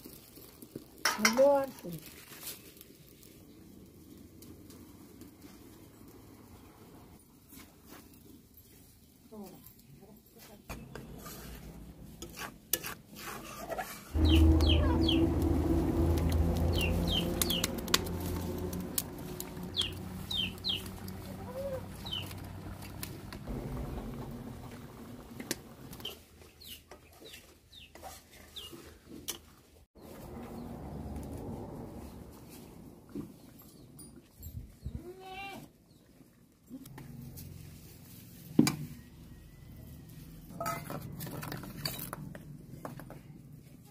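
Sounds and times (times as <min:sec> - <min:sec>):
chicks peeping: 0:14.2 - 0:15.3, 0:16.7 - 0:17.7, 0:19.7 - 0:21.0, 0:22.0 - 0:22.3
loud low hum: 0:14.2 - 0:25.9.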